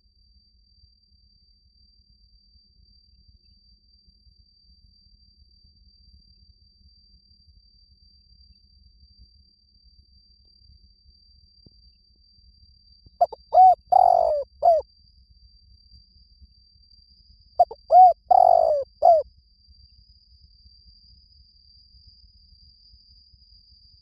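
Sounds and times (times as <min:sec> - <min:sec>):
dove cooing: 0:13.2 - 0:14.8, 0:17.6 - 0:19.2.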